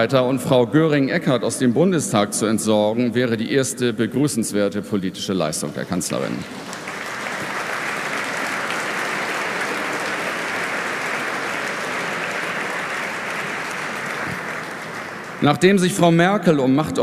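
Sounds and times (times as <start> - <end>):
audience applauding: 6.1 - 16.1.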